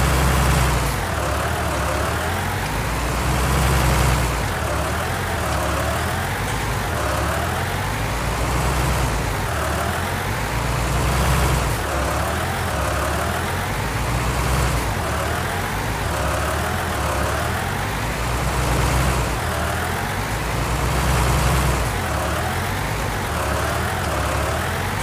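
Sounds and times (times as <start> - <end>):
tractor engine running: 0.0 - 25.0.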